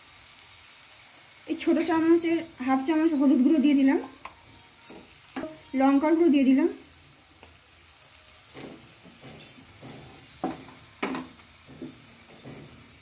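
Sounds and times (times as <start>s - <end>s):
frying oil sizzling: 0.0s - 13.0s
wooden spatula scraping a pan: 8.3s - 13.0s.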